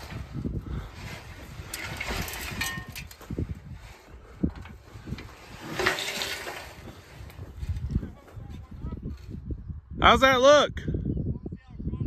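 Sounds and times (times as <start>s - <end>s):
metal pipe wheel rumbling: 0.0s - 8.1s.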